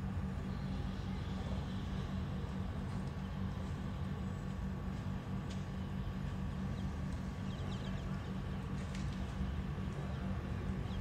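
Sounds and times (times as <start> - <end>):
flock of birds chirping: 6.5 - 11.0.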